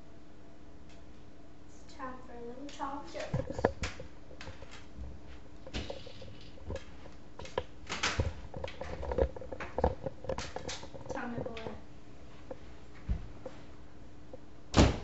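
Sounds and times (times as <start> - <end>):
faint steady hum: 0.0 - 15.0
footsteps indoors: 2.6 - 14.5.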